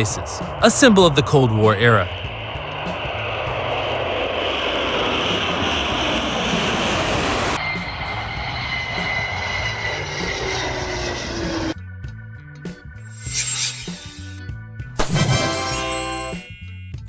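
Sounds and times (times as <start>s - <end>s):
thin high jet whine: 0.0s - 11.9s, 12.9s - 14.8s
jet aircraft flying past: 0.0s - 14.5s.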